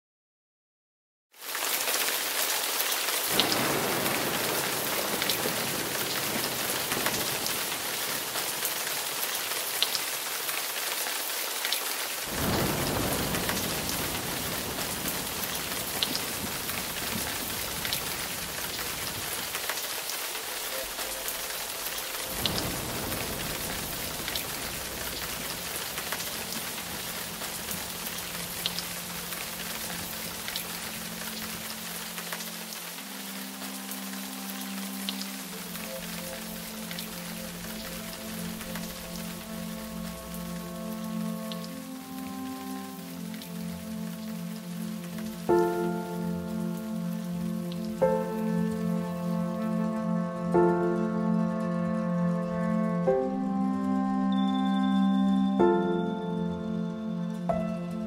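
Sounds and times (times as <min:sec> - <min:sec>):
steady rain on hard surface: 0:01.3 - 0:58.0
low thunder rumbles: 0:03.3 - 0:08.6, 0:12.3 - 0:19.6, 0:20.8 - 0:28.6.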